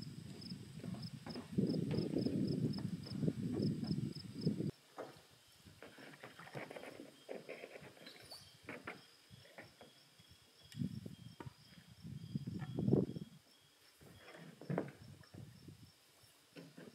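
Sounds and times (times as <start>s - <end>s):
knocks and rustles: 5.8s - 10.0s, 14.0s - 15.5s, 16.5s - 16.9s.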